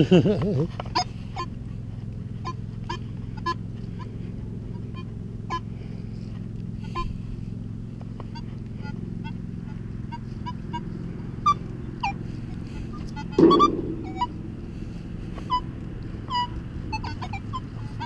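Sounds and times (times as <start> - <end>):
steady low hum: 0.0 - 18.0
metal detector beeps: 12.9 - 14.4.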